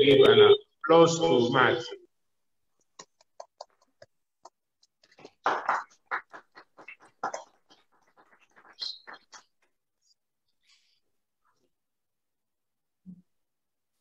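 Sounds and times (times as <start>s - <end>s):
people clapping: 3.0s - 9.8s.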